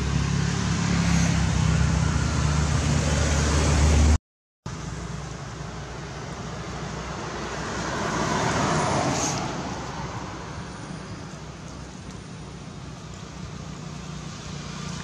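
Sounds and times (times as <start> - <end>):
vehicle passing: 0.0 - 4.2, 5.6 - 15.0.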